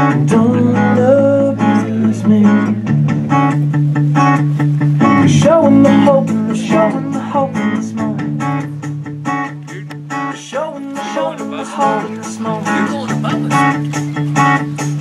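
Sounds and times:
acoustic guitar strumming: 0.0 - 15.0
gliding melody line: 5.0 - 8.3.

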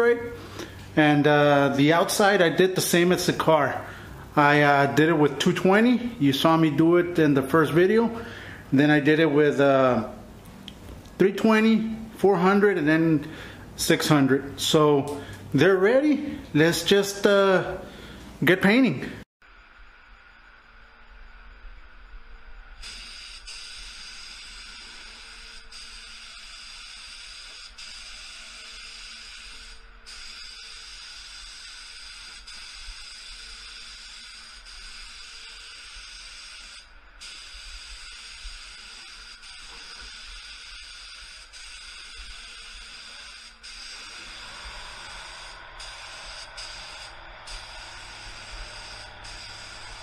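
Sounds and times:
spray gun hissing: 22.8 - 50.0.

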